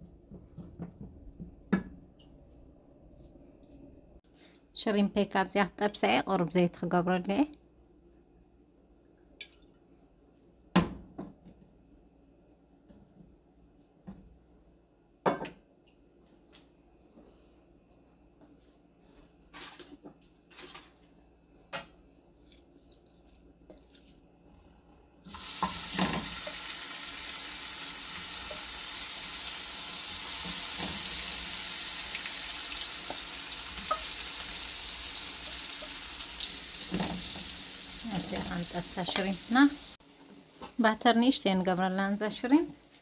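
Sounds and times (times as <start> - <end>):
shrimp sizzling in hot oil: 25.3 - 40.0.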